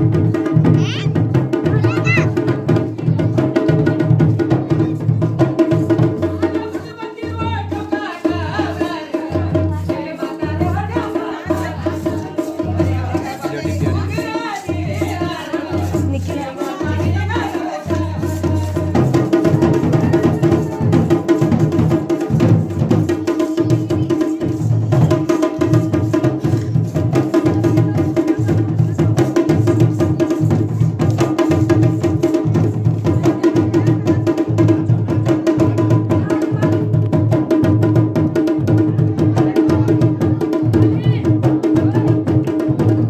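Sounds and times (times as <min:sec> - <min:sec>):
heavy drum strokes: 0:00.0 - 0:43.0.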